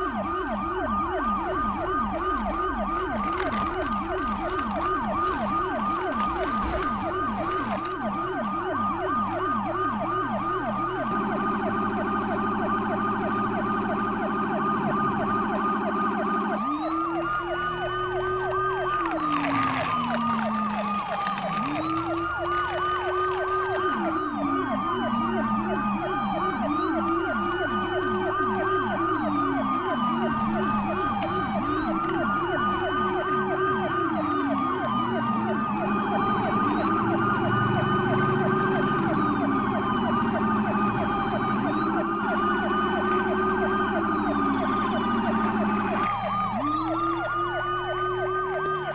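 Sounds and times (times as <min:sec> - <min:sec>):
toy siren rapid yelp: 0:00.0 - 0:48.9
toy siren wailing: 0:00.0 - 0:48.9.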